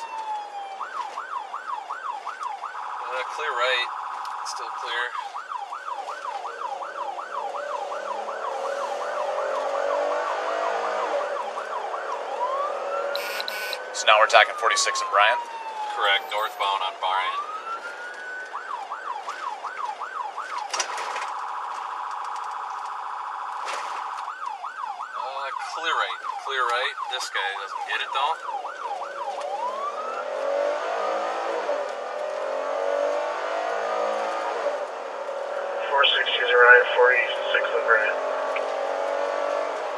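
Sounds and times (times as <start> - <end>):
police siren yelp and wail: 0.0 - 39.9
car engine accelerating: 6.1 - 14.6, 28.7 - 39.9.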